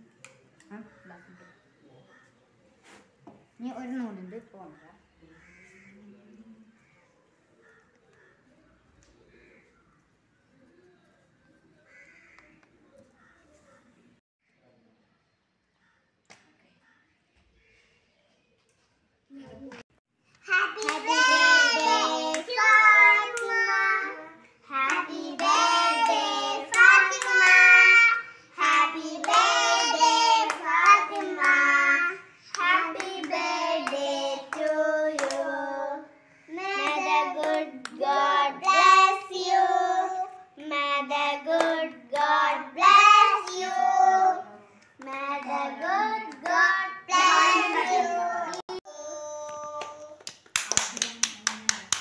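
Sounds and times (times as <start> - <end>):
hands clapping: 20.4 - 23.6, 24.8 - 27.9, 28.7 - 31.8, 32.5 - 34.0, 36.8 - 38.0, 47.8 - 48.8, 49.4 - 52.0
child singing: 20.4 - 50.2.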